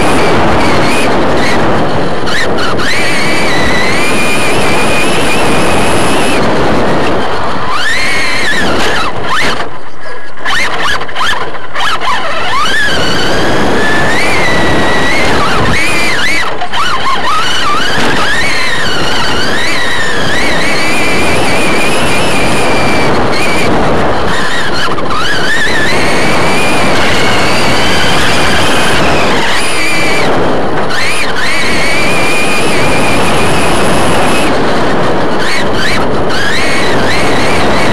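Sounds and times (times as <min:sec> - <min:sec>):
electric motor whine: 0:00.0 - 0:09.8, 0:10.5 - 0:37.9
tyre and wind rush: 0:00.0 - 0:37.9.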